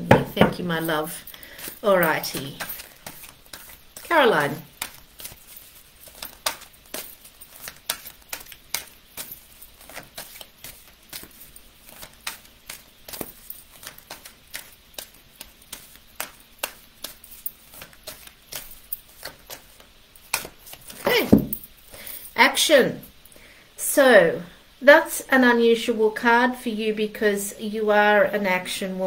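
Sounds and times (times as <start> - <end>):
cards being shuffled: 0.0 - 21.7.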